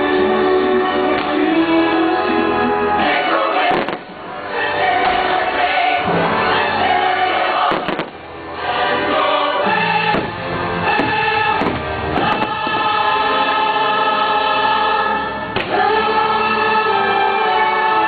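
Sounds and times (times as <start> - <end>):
choral orchestral music over loudspeakers: 0.0 - 18.0
fireworks bursting: 3.6 - 4.2, 7.3 - 8.4, 10.0 - 13.2.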